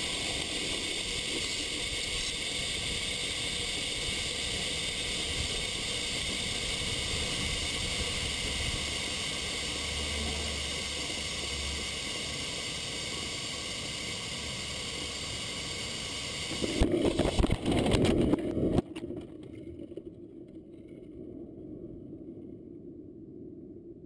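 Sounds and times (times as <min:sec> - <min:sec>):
wind hiss: 0:00.0 - 0:18.8
thin electronic whine: 0:00.0 - 0:24.0.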